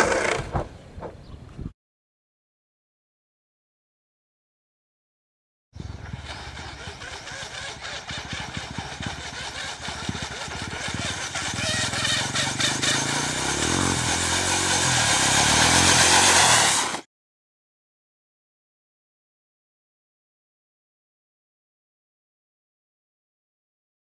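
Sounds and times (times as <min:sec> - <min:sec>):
electric motor running: 0:06.4 - 0:17.0
water spray hiss: 0:12.7 - 0:17.0.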